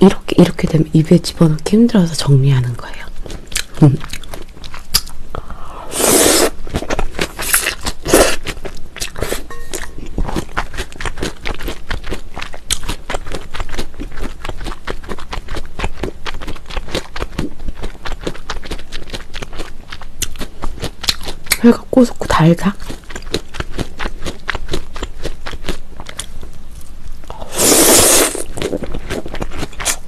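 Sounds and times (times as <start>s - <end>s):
wet crunchy chewing: 3.2s - 5.5s, 6.1s - 21.7s, 22.7s - 30.0s
slurping noodles: 5.7s - 8.5s, 27.4s - 30.0s.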